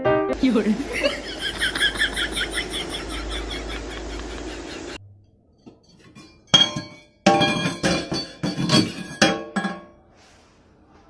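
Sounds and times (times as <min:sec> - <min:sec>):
metal cup clanging against sink: 0:05.6 - 0:10.0.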